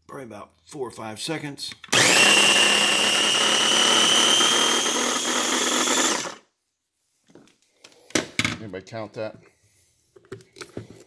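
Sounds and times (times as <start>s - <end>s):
electric food chopper whirring: 1.9s - 6.5s.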